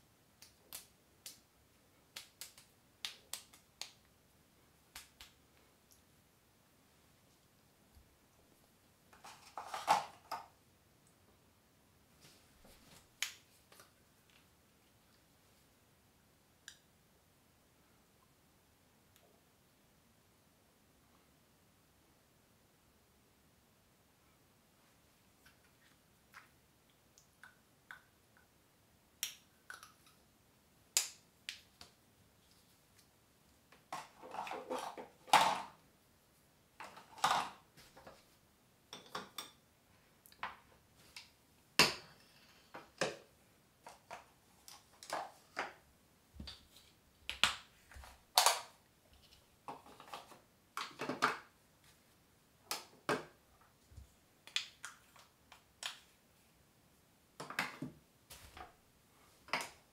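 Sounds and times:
clicks and taps of small items: 47.3s - 47.7s.

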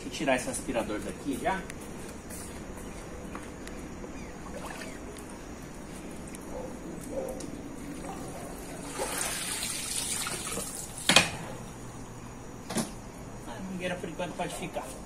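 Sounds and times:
water pouring and splashing: 7.8s - 11.2s.

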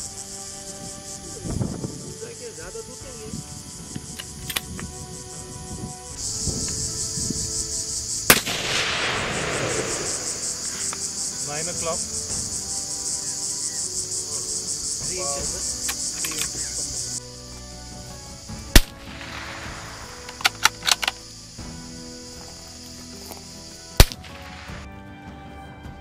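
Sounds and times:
pulsing insect chorus: 0.0s - 24.9s
echoing rifle shot: 8.3s - 11.4s, 18.7s - 21.0s, 24.0s - 24.3s.

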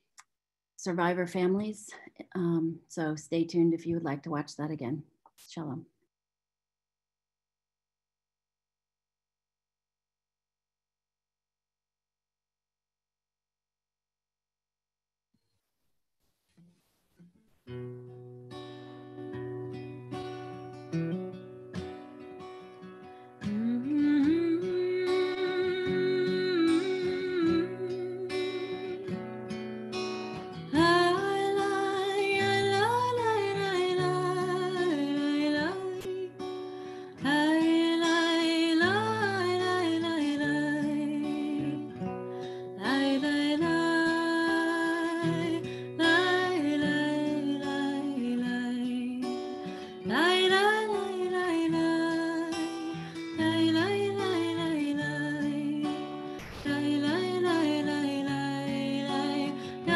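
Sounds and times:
acoustic guitar: 16.5s - 59.9s
person singing: 23.5s - 29.2s, 50.4s - 59.9s.

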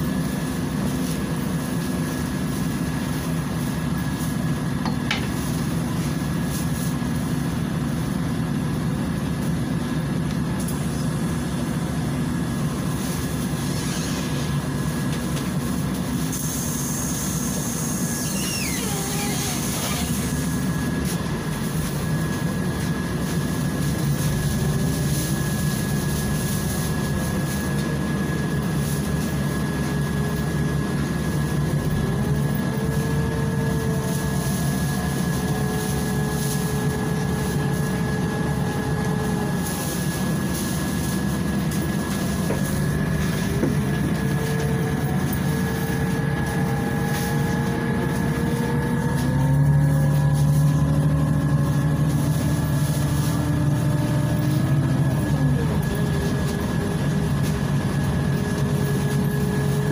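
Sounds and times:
bus engine low hum: 0.0s - 59.9s
drivetrain whine: 0.0s - 59.9s.

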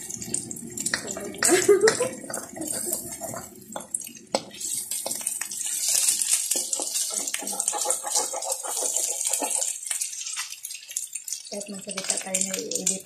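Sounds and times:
food sizzling in a wok: 0.0s - 13.0s
spatula scraping a pan: 1.0s - 3.5s, 4.3s - 12.2s.

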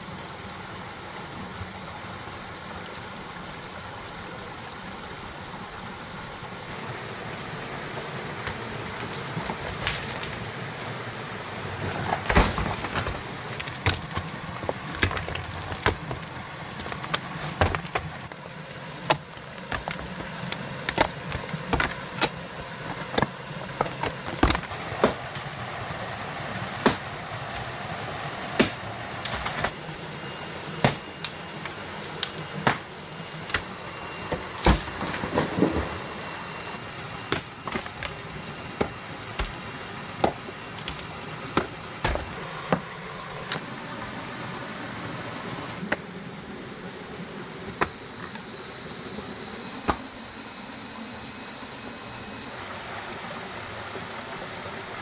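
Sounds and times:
steady background hiss: 0.0s - 55.0s
hand tools striking earth and rock: 11.9s - 18.4s, 19.0s - 25.2s, 26.8s - 27.7s, 28.6s - 29.8s, 30.8s - 35.8s, 37.2s - 38.2s, 38.8s - 42.9s.

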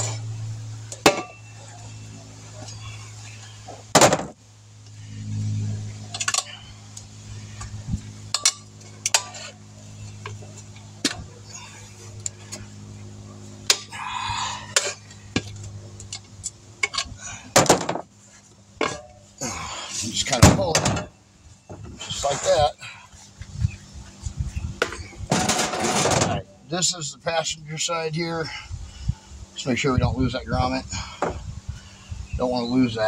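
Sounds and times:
steady low hum: 0.0s - 33.0s
metal tire lever clinks and scrapes: 6.1s - 6.6s, 8.3s - 9.6s, 14.7s - 17.2s, 24.8s - 26.4s.

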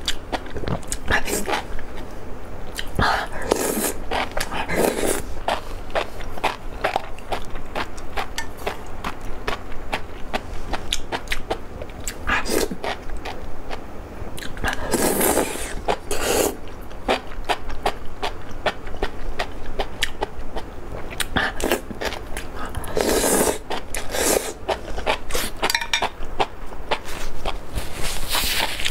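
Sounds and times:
slurping noodle strands: 3.4s - 6.6s, 14.7s - 17.2s, 22.8s - 25.6s.

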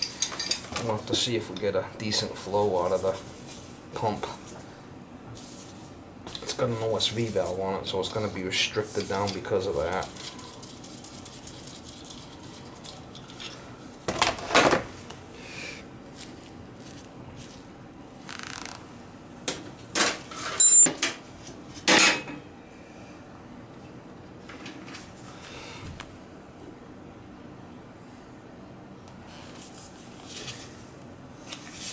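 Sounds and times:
metal tools clinking and scraping: 0.0s - 1.7s, 20.4s - 20.9s.

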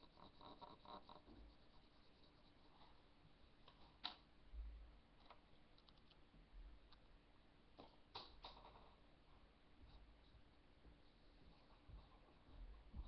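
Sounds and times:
faint clicks of pen: 5.2s - 6.2s.

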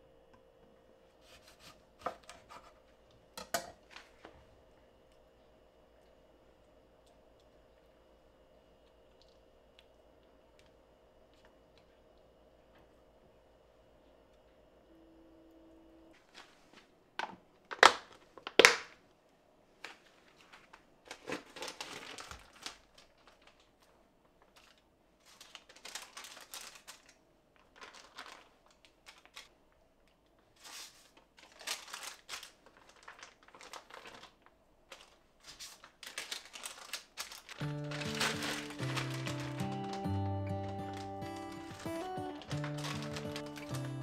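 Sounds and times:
paper and plastic packaging rustling: 16.2s - 18.9s, 19.8s - 29.5s, 30.4s - 44.0s.

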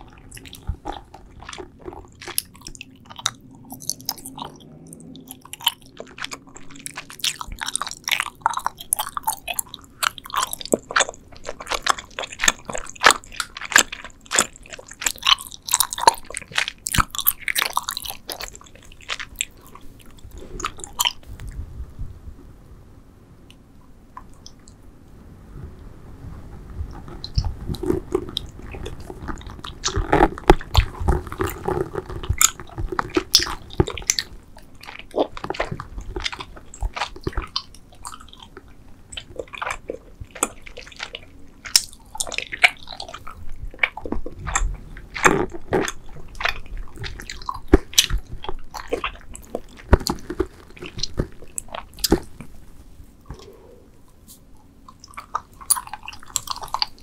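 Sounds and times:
chewing gummy candy: 0.0s - 21.6s, 26.7s - 57.0s.

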